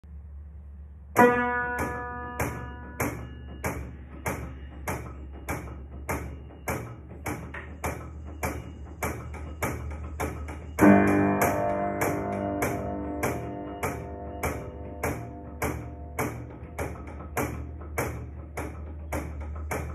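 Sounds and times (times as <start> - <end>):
loud piano chord ringing: 1.2 - 6.5, 9.2 - 18.2
untuned player piano knocks: 1.2 - 19.9.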